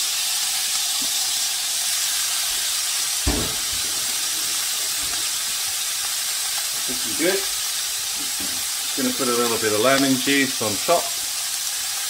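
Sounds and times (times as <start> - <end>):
octopus sizzling on a griddle: 0.0 - 12.0
short low thump: 3.3 - 5.2.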